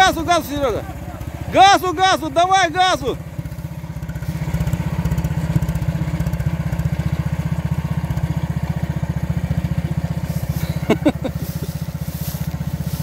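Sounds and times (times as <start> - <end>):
engine running under throttle: 0.0 - 13.0.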